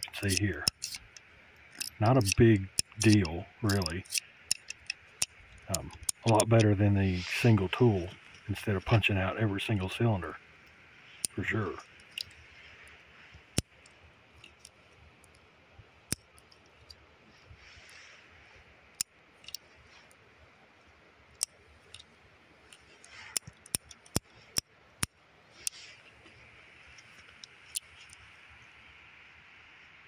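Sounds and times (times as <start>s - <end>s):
revolver cylinder clicking: 0.0s - 15.5s, 16.1s - 17.0s, 19.0s - 20.2s, 21.4s - 28.3s.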